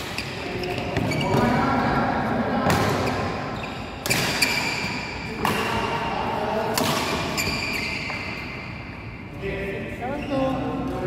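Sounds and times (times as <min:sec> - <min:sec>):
rackets hitting shuttlecock: 0:02.6 - 0:08.5.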